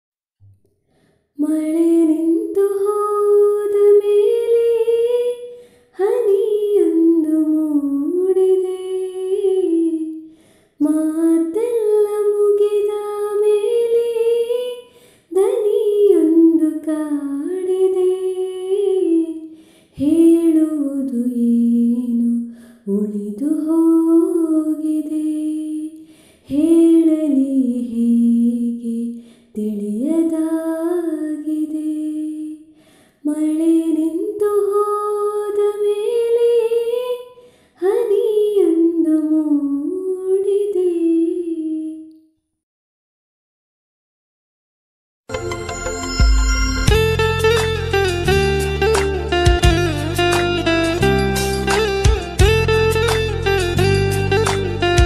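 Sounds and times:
singer breathing: 0.8s - 1.4s, 5.5s - 6.0s, 10.3s - 10.8s, 14.8s - 15.4s, 19.5s - 20.0s, 22.5s - 22.9s, 26.0s - 26.5s, 29.2s - 29.6s, 32.7s - 33.3s, 37.4s - 37.8s
woman singing slow melody: 1.4s - 42.2s.

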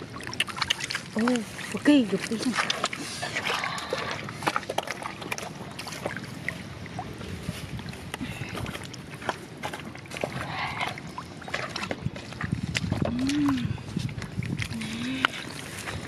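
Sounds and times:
fish splashing in water: 0.0s - 7.6s
steady low rumble: 0.0s - 16.0s.

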